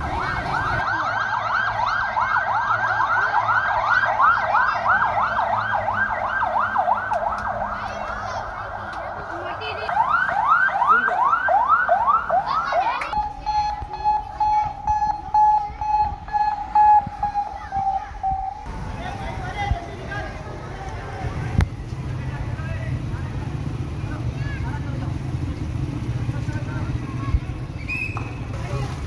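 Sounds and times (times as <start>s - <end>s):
ambulance siren: 0.0s - 18.7s.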